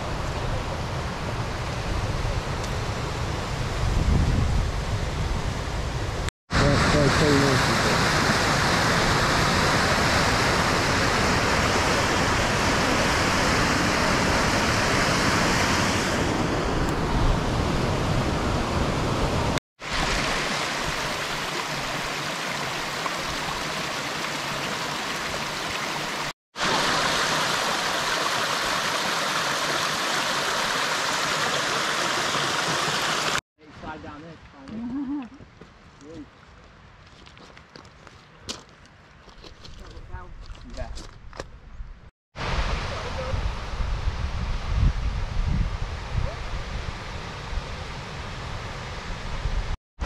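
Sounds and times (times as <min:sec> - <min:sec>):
stream rushing over rocks: 0:19.8 - 0:33.4.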